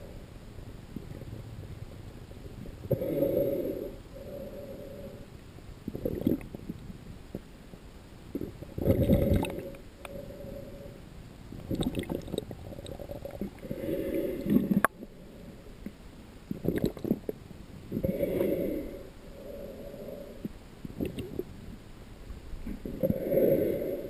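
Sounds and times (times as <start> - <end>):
muffled underwater gurgling: 5.9 - 7.4, 8.3 - 10.4, 11.5 - 15.7, 16.5 - 19.0.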